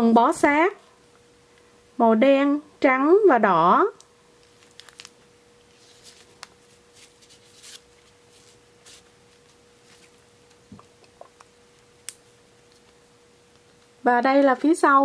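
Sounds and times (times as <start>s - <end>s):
faint steady hum: 0.0s - 15.0s
clothes rustling: 5.7s - 10.3s.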